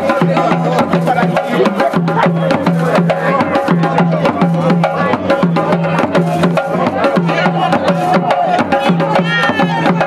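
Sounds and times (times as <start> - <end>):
hand drums sharp strikes: 0.0 - 10.0.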